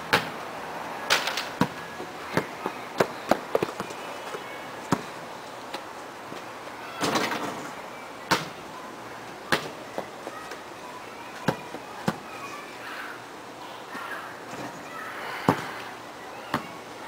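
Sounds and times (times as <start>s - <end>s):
basketball bouncing on hard ground: 1.1s - 5.1s, 11.4s - 12.2s, 15.4s - 15.7s.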